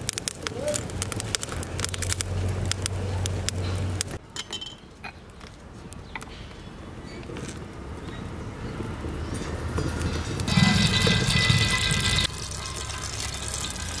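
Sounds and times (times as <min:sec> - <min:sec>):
wood fire crackling: 0:00.0 - 0:14.0
low rumble: 0:10.2 - 0:12.5.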